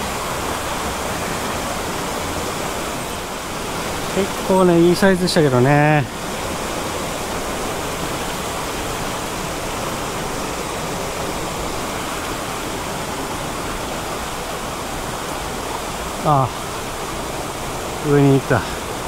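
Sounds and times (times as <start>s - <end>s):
stream rushing over rocks: 0.0s - 19.0s.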